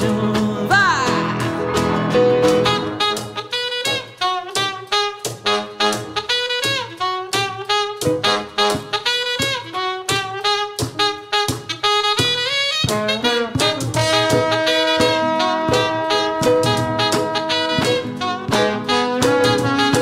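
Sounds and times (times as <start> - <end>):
live band playing: 0.0 - 20.0
saxophone lead: 0.0 - 20.0
steady percussion: 0.0 - 20.0.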